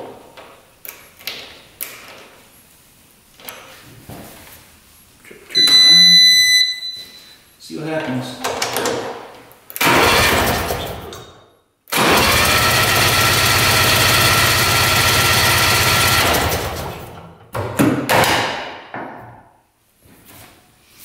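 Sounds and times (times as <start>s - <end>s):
electric starter cranking engine: 9.8s - 11.1s, 11.9s - 17.2s.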